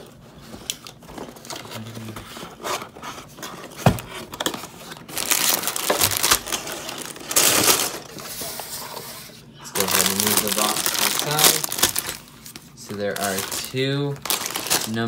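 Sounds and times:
plastic bags crinkling: 4.3s - 8.4s, 9.8s - 15.0s.

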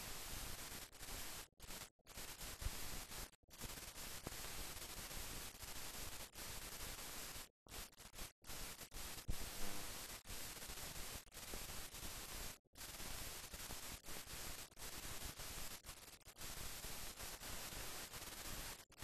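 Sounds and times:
film soundtrack hiss: 0.0s - 18.9s.

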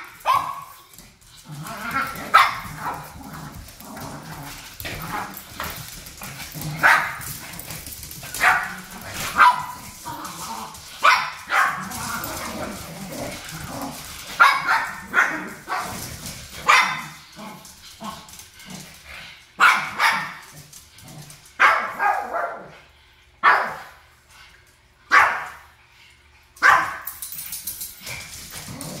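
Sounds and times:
dogs barking sharply: 8.4s - 9.8s, 11.0s - 11.9s, 14.4s - 16.0s, 16.6s - 17.2s, 19.6s - 20.5s, 26.6s - 27.1s.

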